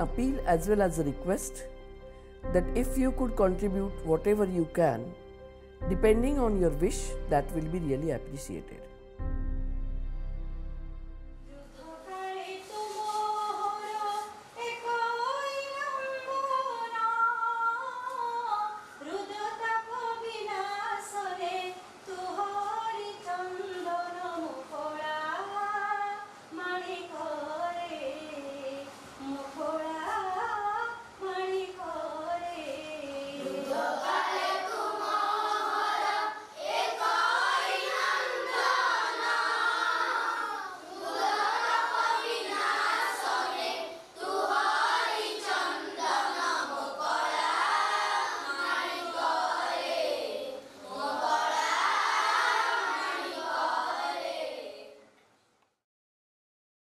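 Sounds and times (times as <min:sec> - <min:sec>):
chorus of voices singing: 0:31.9 - 0:55.0.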